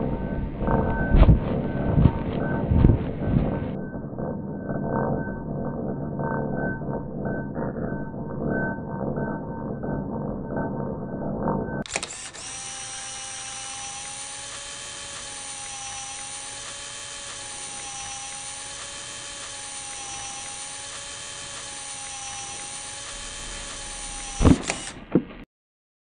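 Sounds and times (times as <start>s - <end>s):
mechanical whirring drone: 0.0s - 25.1s
sharp loud clicks: 11.8s - 12.7s, 14.0s - 25.4s.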